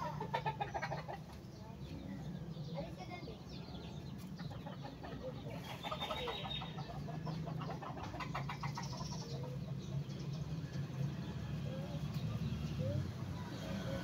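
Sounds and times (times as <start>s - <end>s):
chickens clucking: 0.0s - 14.0s
small birds chirping: 0.0s - 14.0s.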